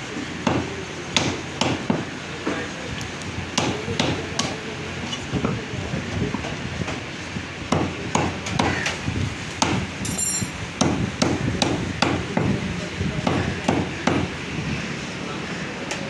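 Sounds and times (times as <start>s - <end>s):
cleaver chopping meat on wood: 0.4s - 2.1s, 3.6s - 4.6s, 7.7s - 8.9s, 9.6s - 9.8s, 13.2s - 14.3s.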